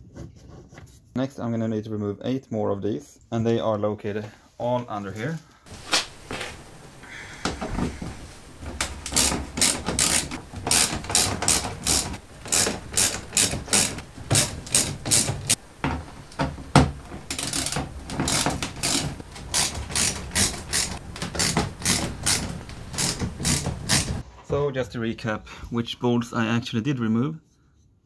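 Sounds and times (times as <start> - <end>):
ratchet wrench clicking: 9.1 - 13.9.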